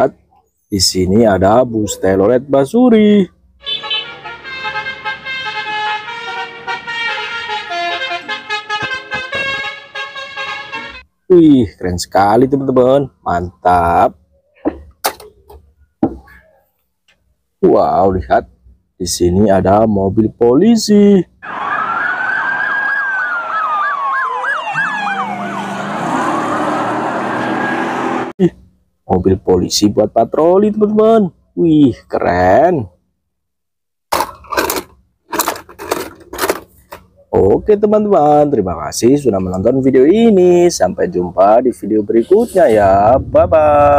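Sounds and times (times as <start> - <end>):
multi-tone bus horn tune: 3.6 - 11.1
police sirens wailing and yelping: 21.4 - 28.3.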